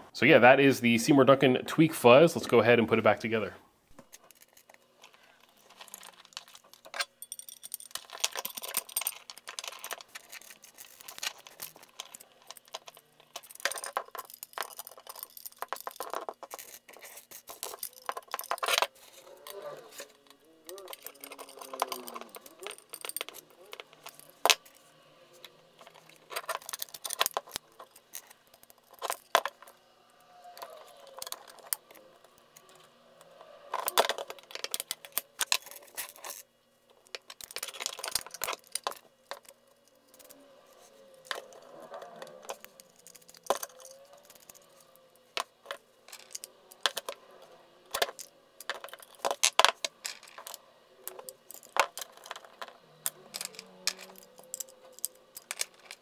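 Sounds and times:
small metal parts clinking: 3.9 - 56.0
nut driver turning a nut: 5.7 - 29.8, 37.1 - 56.0.

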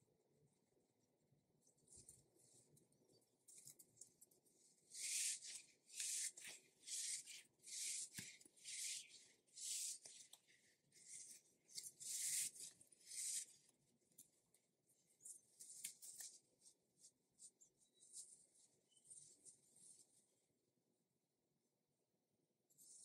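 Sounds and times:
scratchy rubbing on rubber toy: 4.9 - 10.3, 11.0 - 13.6.

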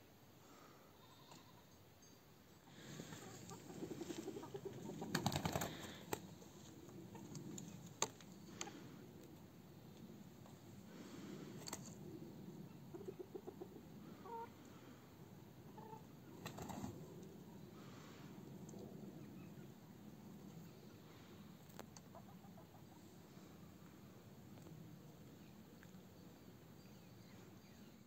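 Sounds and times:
chickens clucking: 2.9 - 6.4, 12.7 - 14.5, 15.6 - 16.9, 21.7 - 23.1
short chicken calls: 12.9 - 14.6, 15.7 - 16.1.

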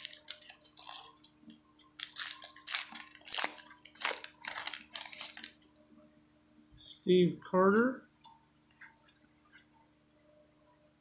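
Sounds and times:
foil wrapper tearing and crinkling: 0.0 - 5.7.

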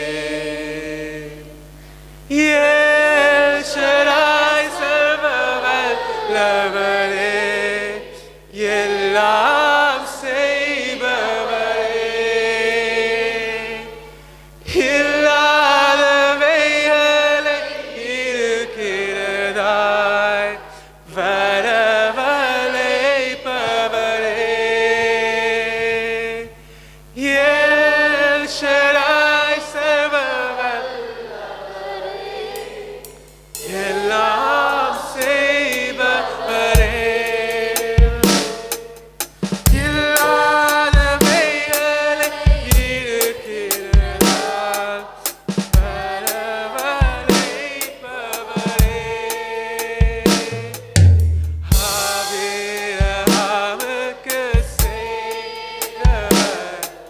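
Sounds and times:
worship song singing: 0.0 - 57.0.

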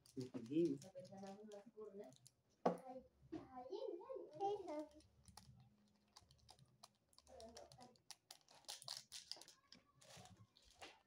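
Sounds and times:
plastic wrappers crinkling and tearing: 0.0 - 2.4, 4.3 - 11.0.

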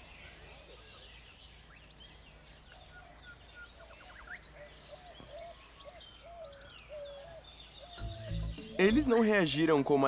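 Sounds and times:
birds chirping and trilling: 0.0 - 10.0
bird whistling bending note: 8.0 - 9.6.

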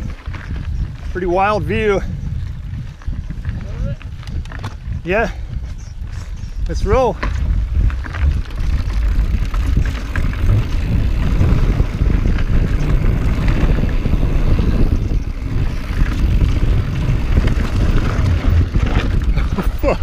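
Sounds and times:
bike rattles and clicks: 0.0 - 20.0
wind rushing over microphone: 0.0 - 20.0
tyres rumbling on dirt: 6.7 - 20.0.

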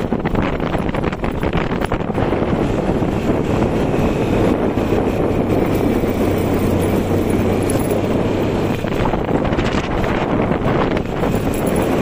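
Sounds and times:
motorcycle engine running: 0.0 - 12.0
wind noise on microphone: 0.0 - 12.0.

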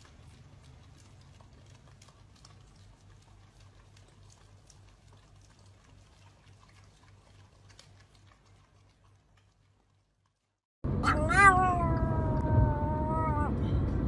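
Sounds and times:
dogs licking ice cream: 0.0 - 10.6
low steady hum: 0.0 - 14.0.

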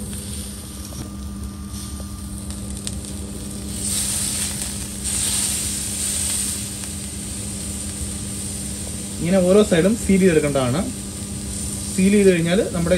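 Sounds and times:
steady low hum: 0.0 - 12.9
steak sizzling on griddle: 2.8 - 12.9.

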